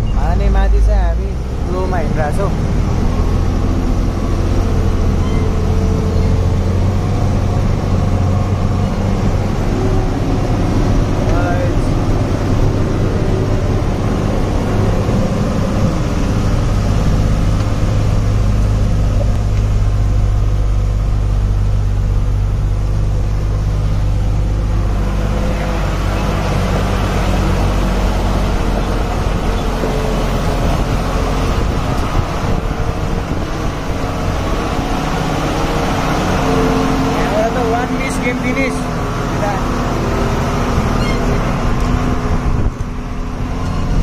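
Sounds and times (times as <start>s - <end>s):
road and wind noise: 0.0s - 44.0s
truck engine droning: 0.0s - 44.0s.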